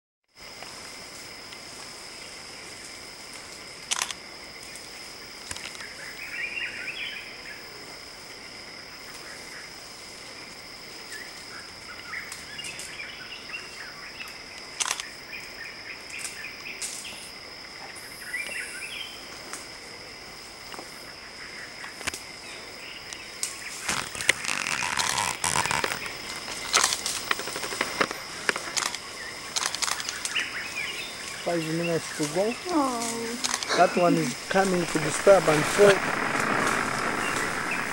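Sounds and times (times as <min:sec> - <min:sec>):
high-pitched insect drone: 0:00.4 - 0:37.9
crackling and rustling: 0:23.4 - 0:30.4, 0:32.0 - 0:37.9
sharp clicks: 0:34.5 - 0:37.9.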